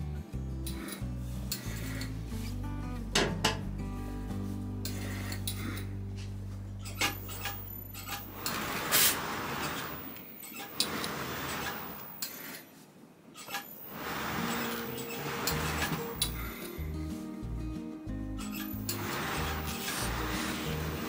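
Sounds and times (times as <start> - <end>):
soft background music: 0.0 - 8.8, 13.9 - 21.0
fabric rustling: 6.2 - 13.0, 13.7 - 16.7, 18.6 - 21.0.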